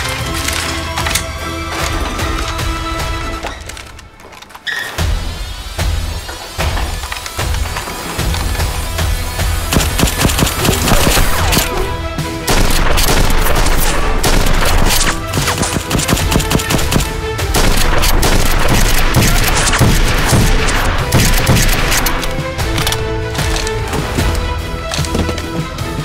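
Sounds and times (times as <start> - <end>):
loud background music: 0.0 - 26.0
toy dart blasters rapid firing: 9.7 - 11.9, 12.5 - 22.8.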